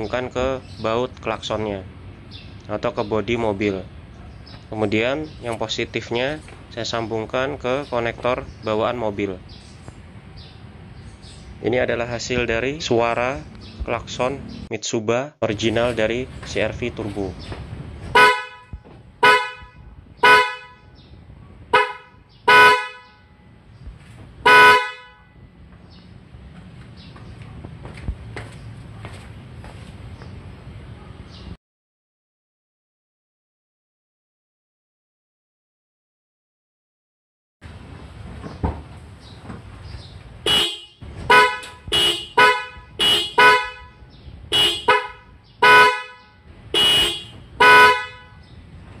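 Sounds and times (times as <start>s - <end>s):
car horn honks: 18.1s - 21.1s, 21.7s - 23.6s, 24.4s - 25.6s, 40.4s - 48.6s.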